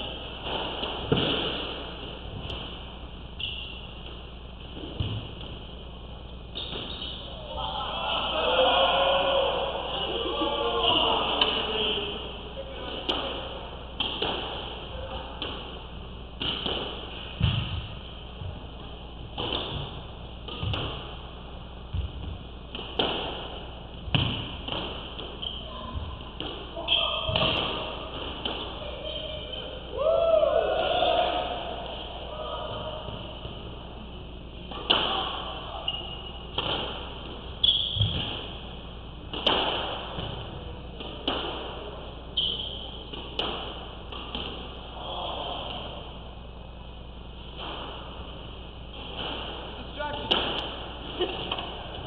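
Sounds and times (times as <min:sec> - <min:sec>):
squash ball hitting rackets and walls: 0:00.0 - 0:05.8, 0:12.8 - 0:29.4, 0:34.7 - 0:46.4, 0:47.4 - 0:52.0.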